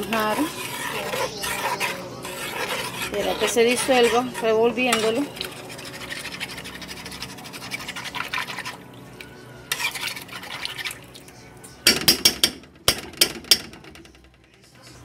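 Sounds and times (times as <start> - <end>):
spoon clinking against pot: 0.0 - 5.5, 11.8 - 13.8
metal spoon scraping a pot: 0.0 - 9.0, 9.6 - 11.1.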